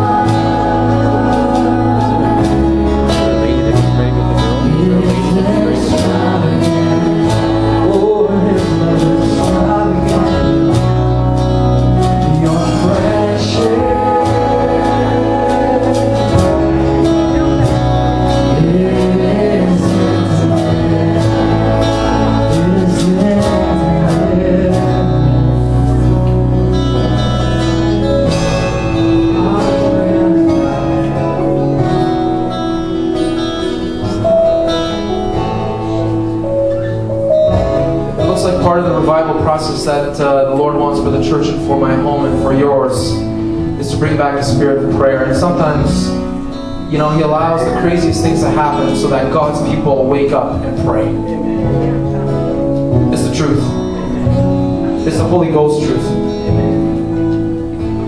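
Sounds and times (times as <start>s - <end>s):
man and woman singing: 0.0s - 26.2s, 29.2s - 31.7s
band accompaniment: 0.0s - 58.0s
strummed acoustic guitar: 0.0s - 58.0s.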